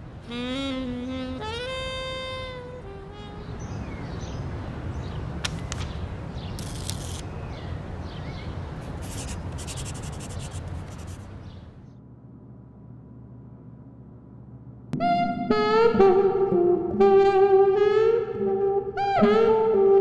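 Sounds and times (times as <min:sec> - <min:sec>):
pen scratching on paper: 0:09.0 - 0:11.3
low outdoor rumble: 0:10.6 - 0:15.0.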